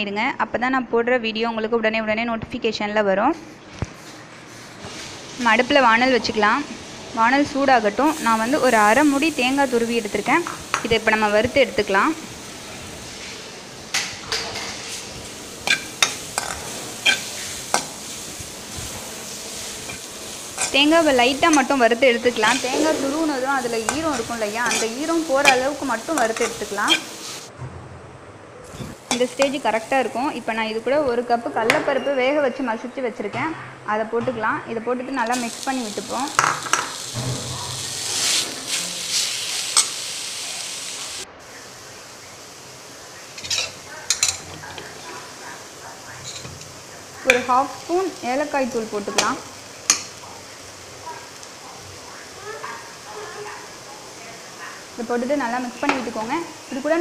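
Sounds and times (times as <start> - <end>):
coconut sizzling in a pan: 4.0 - 27.5, 28.7 - 31.4, 35.2 - 57.0
spoon scraping a frying pan: 14.0 - 27.5, 28.7 - 30.0, 36.3 - 40.0, 43.3 - 45.1, 46.2 - 46.7
spoon clinking: 15.6 - 17.8
steel spoon clinking on pan: 15.6 - 17.9, 23.8 - 27.1, 39.7 - 40.0, 43.4 - 44.5.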